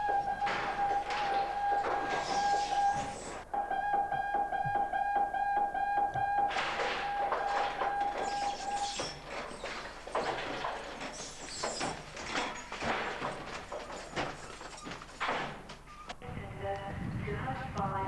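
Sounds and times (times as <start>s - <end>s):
hurried footsteps: 0.0s - 3.5s, 4.1s - 16.2s
electronic alarm tone: 0.0s - 9.1s
doors: 0.0s - 18.0s
clatter: 6.5s - 16.0s.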